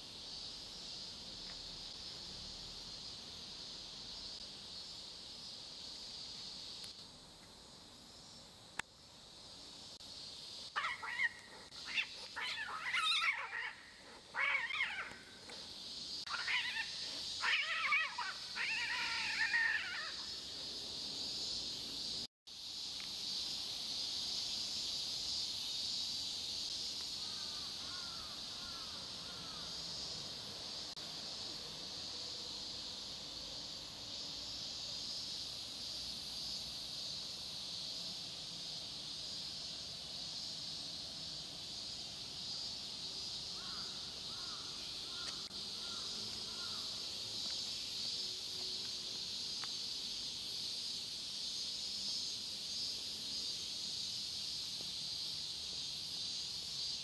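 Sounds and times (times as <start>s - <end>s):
high-pitched insect chorus: 0.0s - 57.0s.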